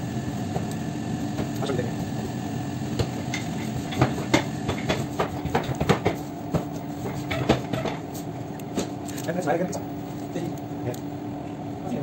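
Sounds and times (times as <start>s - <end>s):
machine hum: 0.0s - 12.0s
hands tapping and slapping dough: 4.0s - 8.0s.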